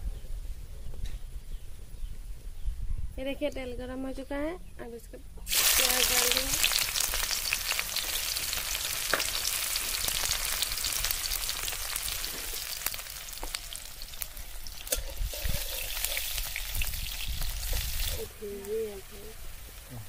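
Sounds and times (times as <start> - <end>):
onions sizzling in oil: 5.5 - 20.0
spatula stirring: 14.9 - 16.5.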